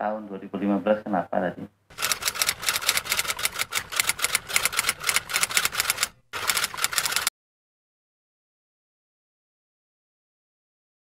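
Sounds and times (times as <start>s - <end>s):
rapid keyboard clicks: 1.9s - 7.3s.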